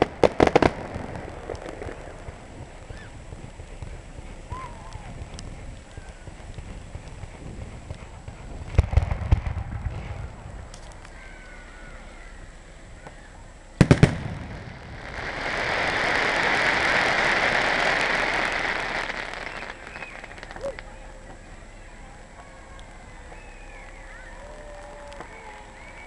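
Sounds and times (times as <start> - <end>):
fireworks bangs: 0.0 - 12.1, 13.8 - 22.3
fireworks hiss: 0.0 - 26.0.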